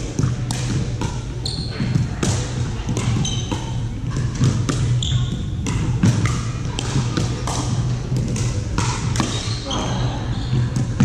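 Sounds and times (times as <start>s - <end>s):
ball bouncing on hardwood court: 0.2s - 9.8s
shoe squeaks: 1.4s - 1.9s, 3.2s - 3.8s, 4.9s - 5.6s
paddles hitting plastic ball: 1.8s - 9.5s.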